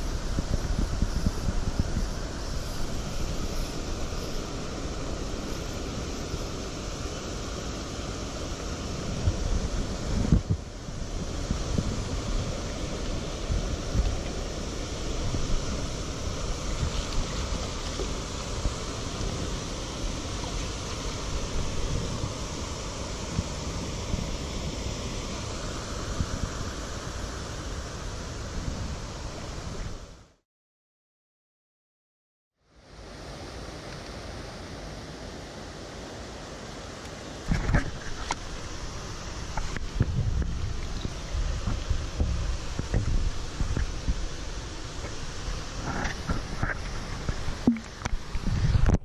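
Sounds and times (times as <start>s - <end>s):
wind buffeting microphone: 0.0s - 5.4s, 8.9s - 24.8s, 37.5s - 49.0s
stream flowing over stones: 0.0s - 29.9s, 32.8s - 49.0s.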